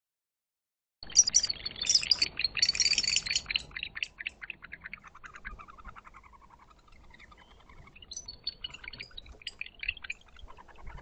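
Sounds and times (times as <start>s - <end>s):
barn owls chittering: 1.0s - 11.0s.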